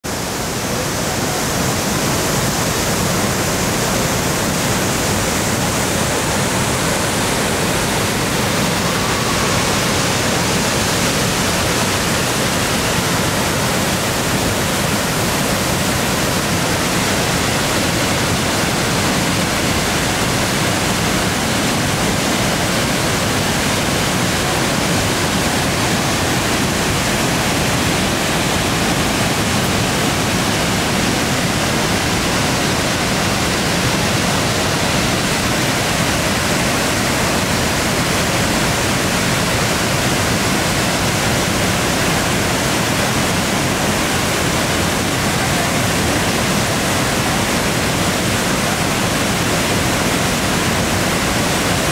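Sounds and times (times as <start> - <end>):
waterfall rushing: 0.0 - 51.9.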